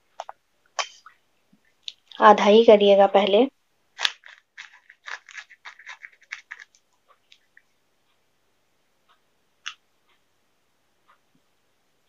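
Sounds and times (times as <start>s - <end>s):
plastic wrapper crinkling: 3.9s - 7.6s.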